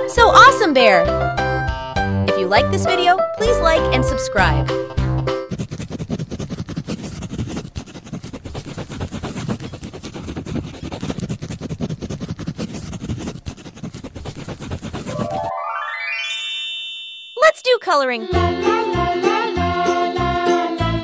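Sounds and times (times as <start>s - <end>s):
marker scratching on paper: 5.4s - 15.2s
rising chime: 15.1s - 18.2s.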